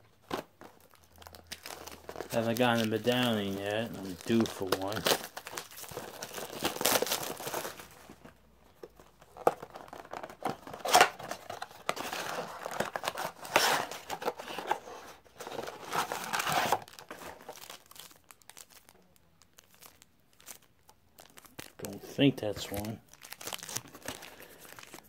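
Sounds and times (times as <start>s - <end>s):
wrapper crinkling: 0.2s - 8.2s, 9.3s - 25.0s.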